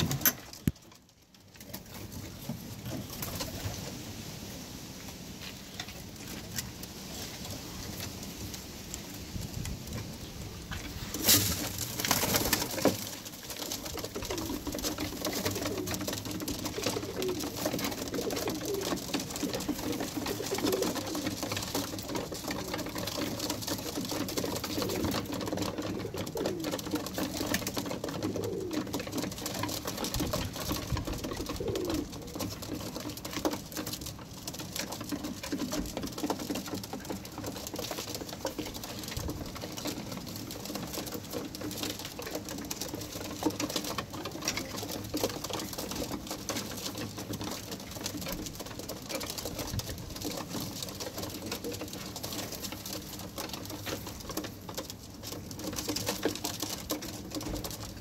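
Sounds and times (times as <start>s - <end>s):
beaks pecking grain on wood: 10.7s - 58.0s
pigeons cooing: 12.2s - 33.2s.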